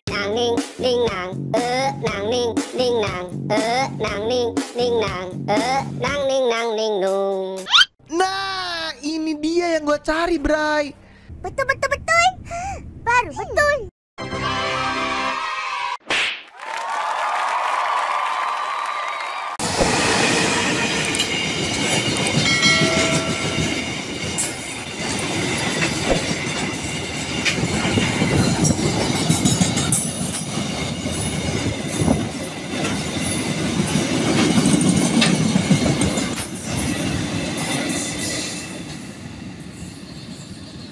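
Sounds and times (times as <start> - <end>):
train wheels clattering over rails: 19.6 - 39.1.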